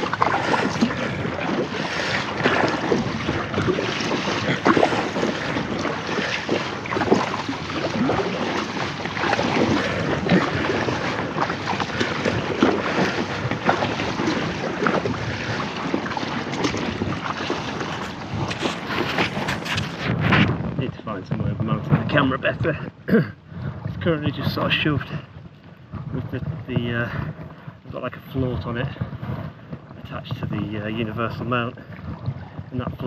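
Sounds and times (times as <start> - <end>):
paddle splashing in water: 0.0 - 22.4, 23.5 - 33.0
water slapping kayak hull: 0.0 - 33.0
wind buffeting microphone: 0.0 - 33.0.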